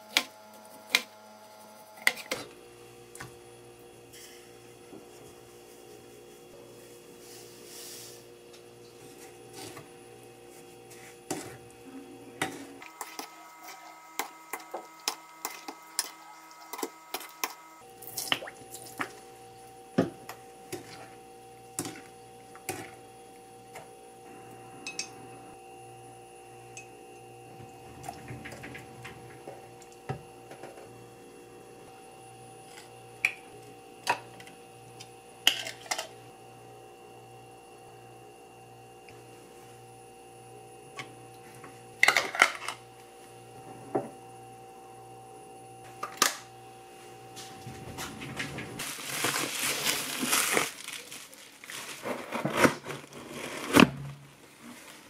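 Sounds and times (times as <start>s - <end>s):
glass jars clinking: 24.8s - 25.2s.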